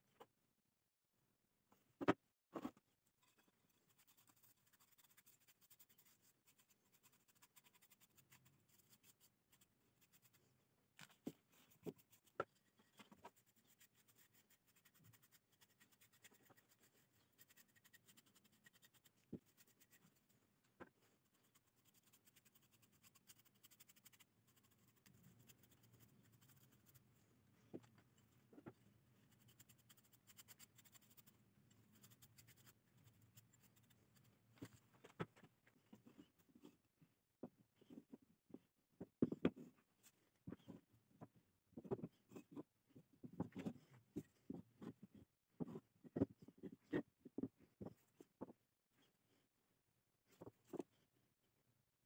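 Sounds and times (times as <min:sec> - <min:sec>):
paintbrush scratching on wood: 0:03.3 - 0:10.5, 0:11.5 - 0:20.3, 0:21.2 - 0:27.2, 0:29.2 - 0:34.3.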